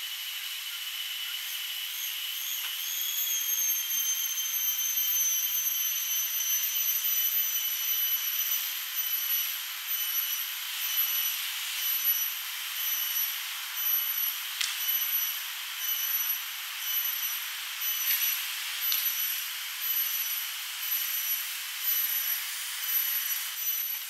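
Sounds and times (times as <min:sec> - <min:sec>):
high-pitched insect drone: 0:00.0 - 0:24.0.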